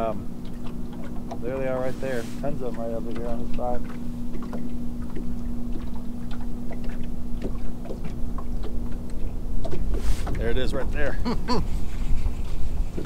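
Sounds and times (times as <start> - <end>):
electric trolling motor humming: 0.0 - 13.0
wind rumble on microphone: 9.7 - 13.0.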